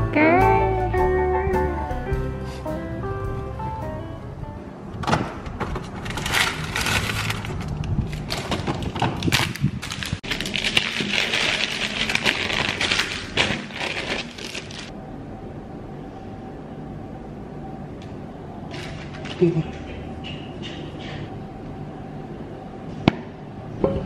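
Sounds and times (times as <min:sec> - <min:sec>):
paper bag rustling and crinkling: 0:05.9 - 0:14.9.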